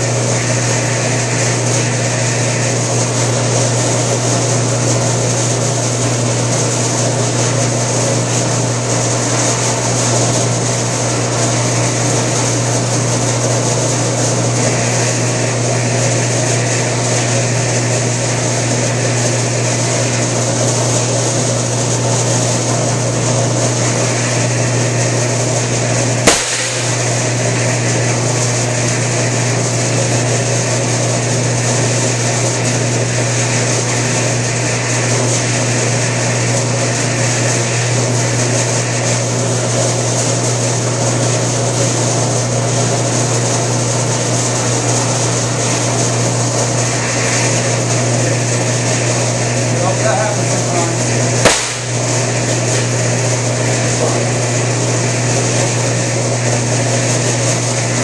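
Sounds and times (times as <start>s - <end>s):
power edger motor hum: 23.8s - 30.2s
sharp click: 26.3s - 27.1s, 51.5s - 51.9s.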